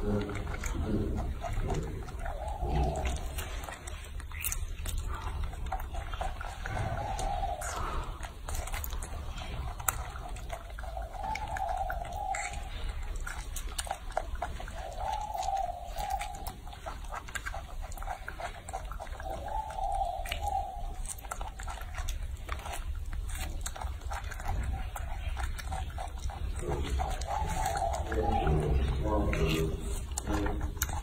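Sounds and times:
monkey chewing with wet clicks: 0.0 - 31.0.

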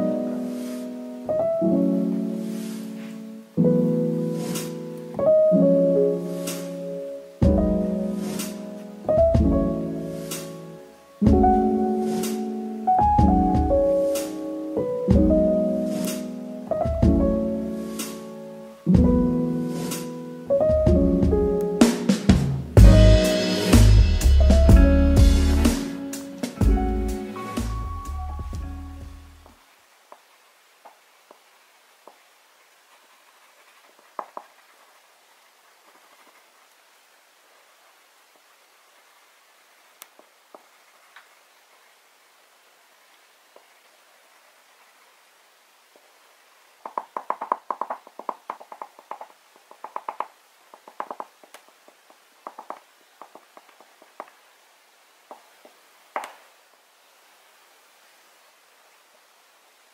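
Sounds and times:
pastel scratching on paper: 32.9 - 35.1, 35.7 - 36.6
light ticks: 40.0 - 41.3.

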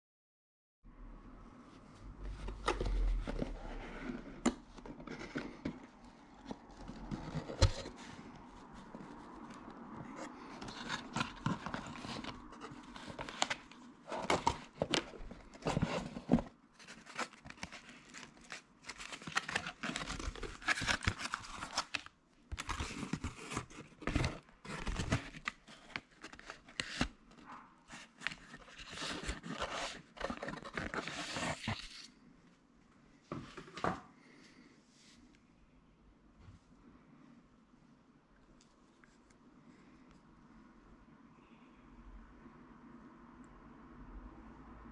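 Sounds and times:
cardboard box being opened: 2.3 - 9.4, 10.0 - 27.2, 27.9 - 32.1.

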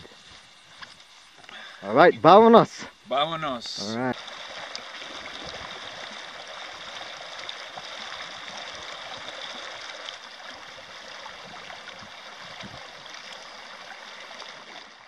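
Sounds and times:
stream flowing over rocks: 4.1 - 15.0.

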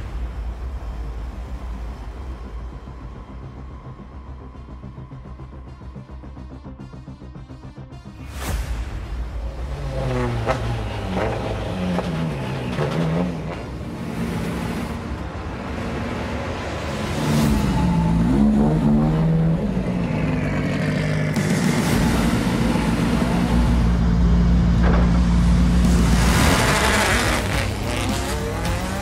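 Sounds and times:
race car engine revving: 9.6 - 15.0, 15.9 - 29.0.

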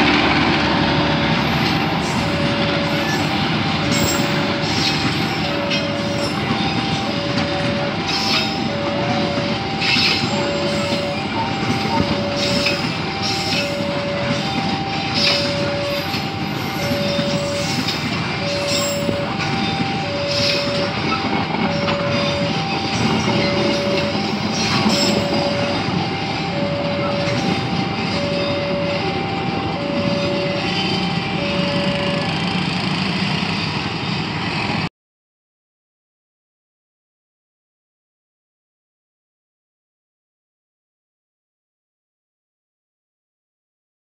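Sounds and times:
train wheels rumbling on rails: 0.0 - 34.9
crossing alarm two-tone chime: 0.8 - 32.9.

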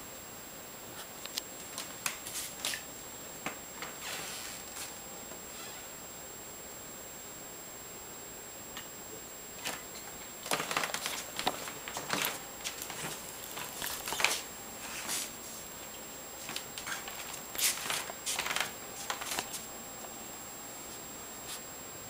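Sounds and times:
rustling and scuffing: 1.0 - 2.9, 3.8 - 5.0, 10.4 - 20.2, 20.8 - 21.7.

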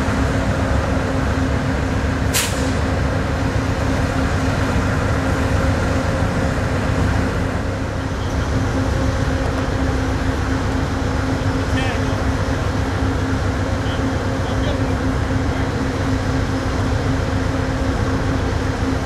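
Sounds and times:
diesel locomotive idling: 0.0 - 19.0
sharp hiss of air: 2.3 - 2.9.

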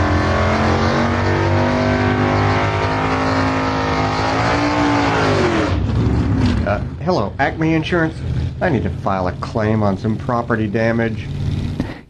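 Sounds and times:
motor engine running: 7.6 - 12.0.

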